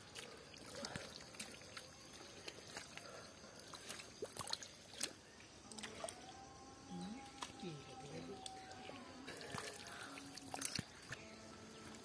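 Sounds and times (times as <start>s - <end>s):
small splats and clicks: 0.0s - 6.3s, 8.3s - 11.2s
muddy water squelching and trickling: 0.0s - 12.0s.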